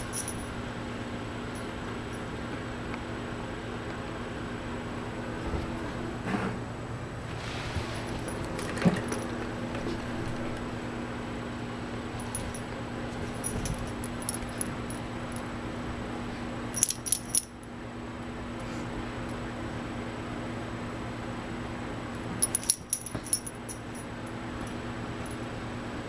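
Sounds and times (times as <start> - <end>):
dog tags jingling: 0.0 - 0.5, 12.2 - 15.0, 16.8 - 17.6, 22.4 - 24.0
steady low hum: 0.0 - 26.0.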